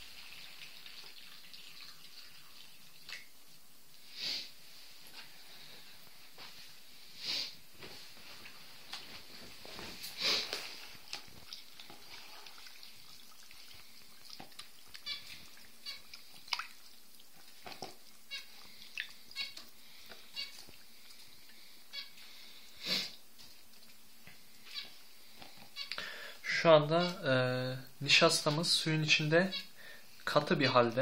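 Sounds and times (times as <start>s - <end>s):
hands kneading wet cornstarch: 9.7s - 21.6s.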